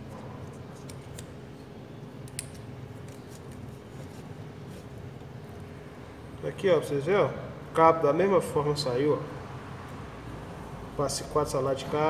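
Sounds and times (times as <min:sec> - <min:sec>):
steady low hum: 0:00.0 - 0:12.0
copper wire clicking and crinkling: 0:00.1 - 0:05.7.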